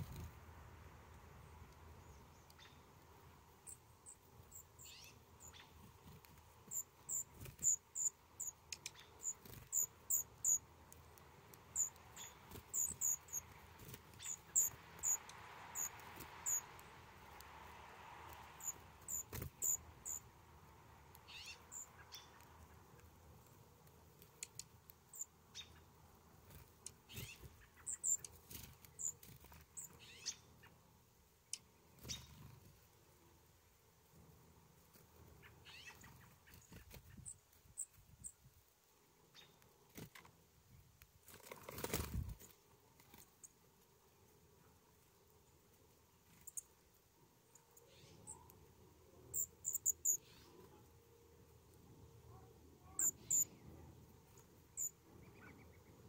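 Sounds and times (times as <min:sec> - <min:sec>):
high bird chip calls: 0:02.0 - 0:02.9, 0:03.6 - 0:05.8, 0:06.7 - 0:10.7, 0:11.7 - 0:17.4, 0:18.5 - 0:20.3, 0:21.1 - 0:22.9, 0:24.4 - 0:26.0, 0:27.1 - 0:29.2, 0:29.8 - 0:30.7, 0:35.4 - 0:37.9, 0:47.8 - 0:48.5, 0:49.3 - 0:50.6, 0:52.3 - 0:53.7, 0:54.7 - 0:56.0.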